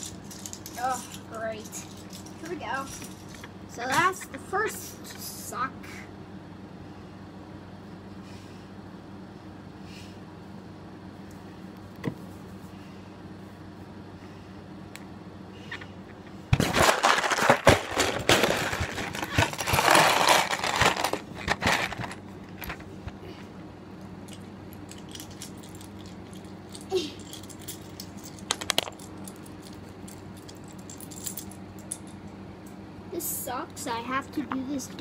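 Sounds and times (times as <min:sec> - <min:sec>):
plastic pieces rattling in a box: 0:00.0 - 0:03.4, 0:16.6 - 0:22.8, 0:24.9 - 0:31.5.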